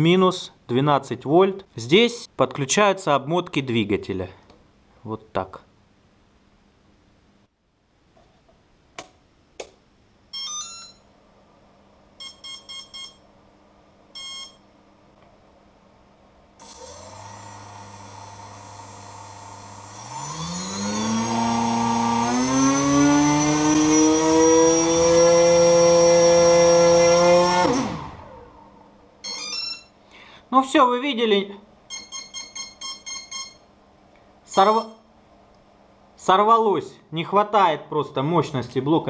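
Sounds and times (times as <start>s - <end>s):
short beeps: 14.2s - 14.6s, 31.9s - 33.7s, 34.6s - 35.1s
speed controller start-up tones: 16.6s - 28.6s
electric motor propeller whine: 16.6s - 28.8s.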